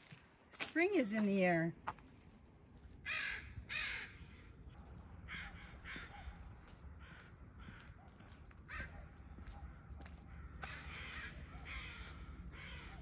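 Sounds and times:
crow cawing: 0:03.0 - 0:04.5, 0:05.3 - 0:13.0.

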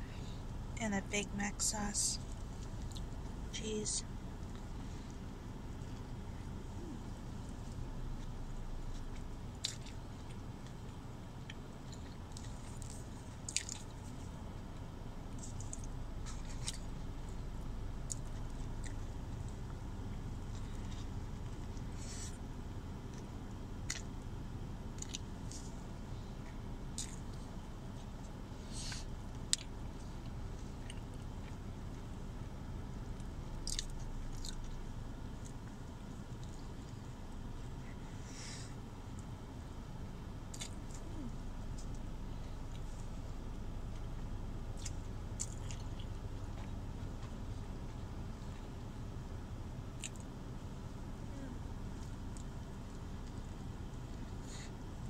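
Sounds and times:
steady low hum: 0:00.0 - 0:55.0
person chewing: 0:04.4 - 0:24.2, 0:24.8 - 0:32.2, 0:33.1 - 0:37.1, 0:40.5 - 0:43.2, 0:43.8 - 0:48.8, 0:49.9 - 0:50.3.

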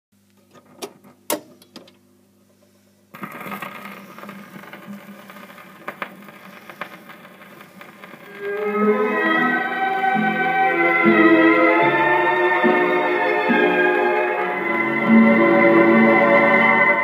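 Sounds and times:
record surface hiss and crackle: 0:00.2 - 0:17.0
record player clicks: 0:00.3 - 0:02.0, 0:03.2 - 0:08.3
stylus setting down on record: 0:00.4 - 0:02.0.

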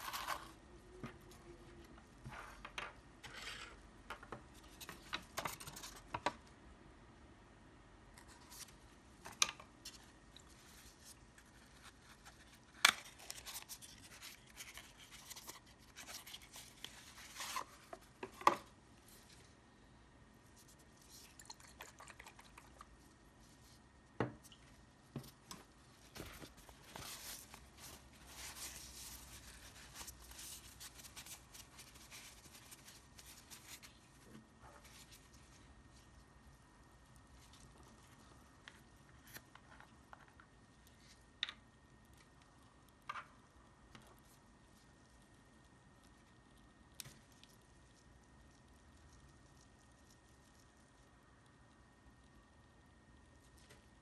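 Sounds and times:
paper rustling and crinkling: 0:08.3 - 0:18.1, 0:25.2 - 0:36.0.

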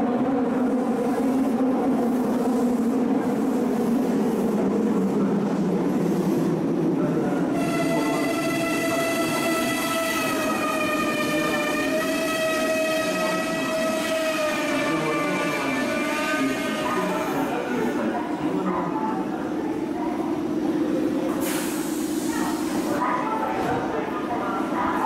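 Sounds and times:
high-pitched train whine: 0:07.4 - 0:18.0.

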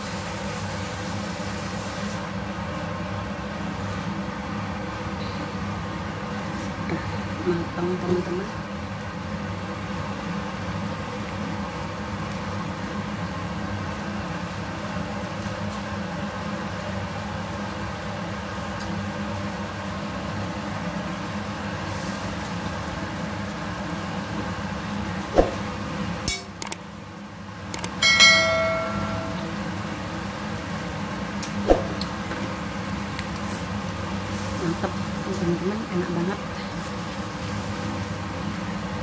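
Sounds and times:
sauce simmering in a wok: 0:00.0 - 0:06.8, 0:08.5 - 0:25.0, 0:36.4 - 0:39.0
sharp clicks: 0:26.3 - 0:26.8, 0:27.7 - 0:28.0
bell-like ding: 0:28.0 - 0:29.8.

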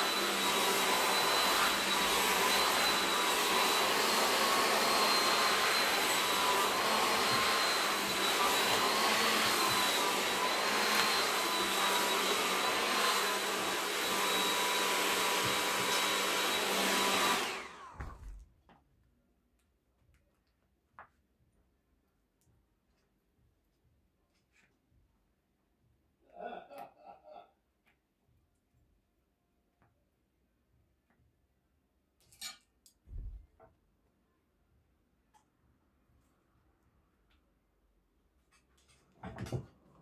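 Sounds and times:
hair dryer running: 0:00.0 - 0:18.4.

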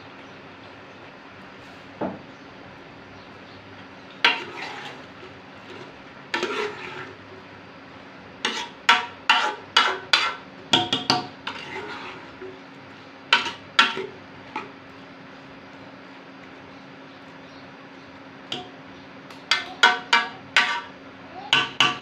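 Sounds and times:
metal spoon scraping a pot: 0:04.2 - 0:07.2, 0:08.4 - 0:10.4, 0:11.4 - 0:12.4, 0:13.3 - 0:14.1, 0:19.5 - 0:21.0.

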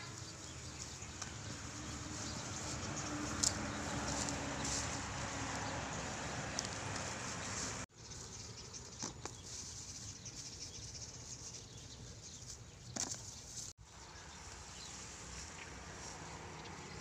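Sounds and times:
dry grass rustling: 0:00.1 - 0:17.0.

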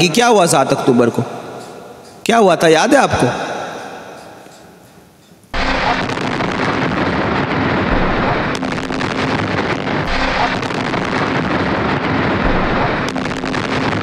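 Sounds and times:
sharp cracks: 0:05.4 - 0:14.0
rough rumbling noise: 0:05.6 - 0:14.0.

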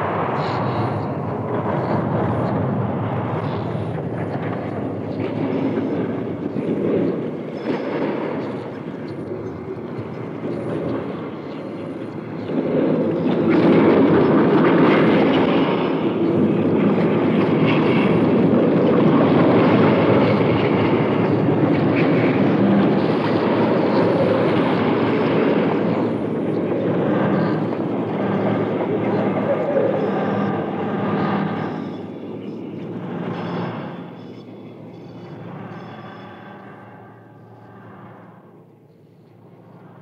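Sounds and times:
dense rumbling noise: 0:00.0 - 0:11.4.

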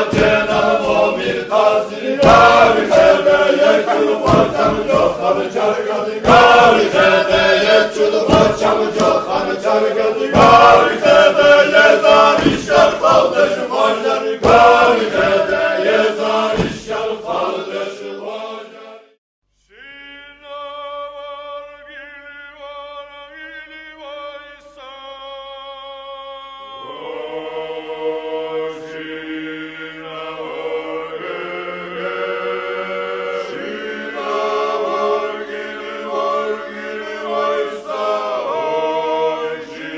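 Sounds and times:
sharp regular beats: 0:00.0 - 0:17.2
choral chanting: 0:00.0 - 0:39.9.

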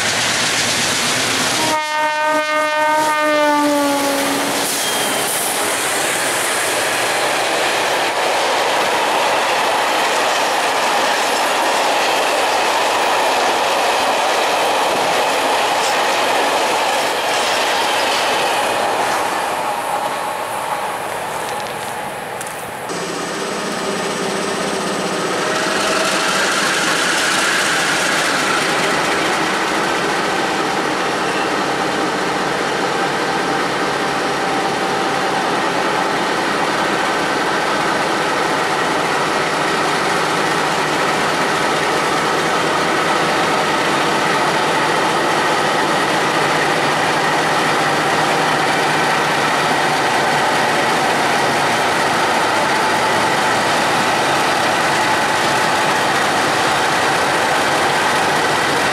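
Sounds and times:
diesel locomotive engines running: 0:02.4 - 0:58.9.

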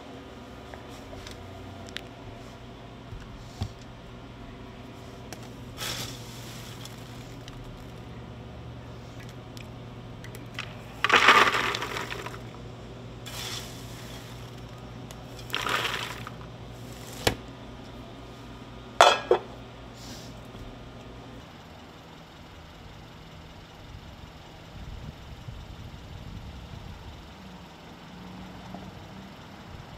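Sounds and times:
steady low hum: 0:00.0 - 0:28.1
popcorn pouring into paper tub: 0:05.8 - 0:08.0, 0:10.6 - 0:12.6, 0:13.3 - 0:17.3.

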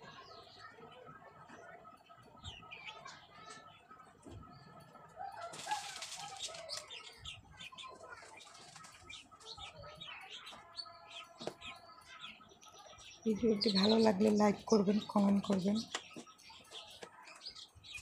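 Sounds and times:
small birds chirping: 0:00.0 - 0:18.0
brief rustle: 0:05.5 - 0:07.0.

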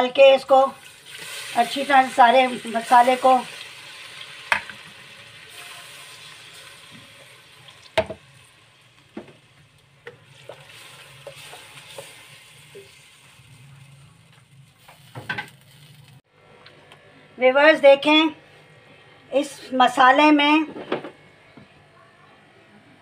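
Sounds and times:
paste sizzling in hot oil: 0:00.8 - 0:09.0, 0:10.2 - 0:14.0.

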